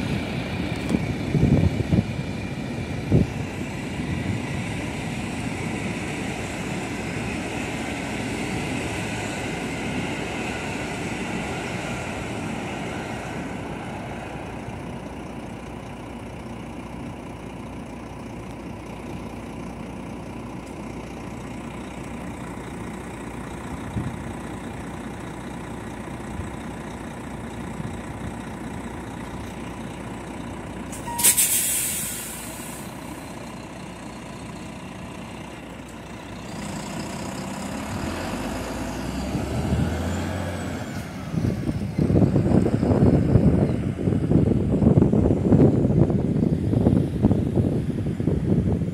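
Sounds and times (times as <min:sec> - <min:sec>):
train carriages rumbling past: 0:00.0 - 0:48.9
truck diesel engine idling: 0:00.0 - 0:48.9
air brake hiss: 0:30.9 - 0:33.2.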